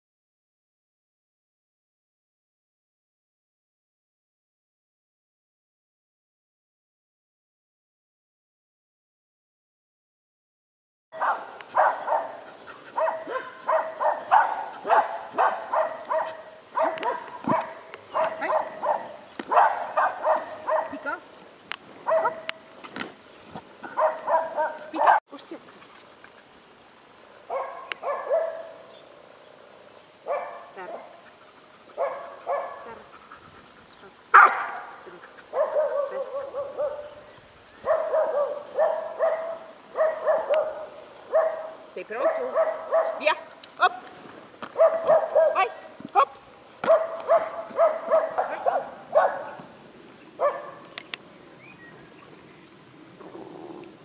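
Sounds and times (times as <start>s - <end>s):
dog yelping barks: 11.2s - 21.2s, 22.1s - 22.6s, 23.9s - 25.2s, 27.5s - 28.8s, 30.3s - 31.0s, 32.0s - 33.0s, 34.3s - 37.1s, 37.9s - 44.0s, 44.8s - 49.6s, 50.4s - 50.8s.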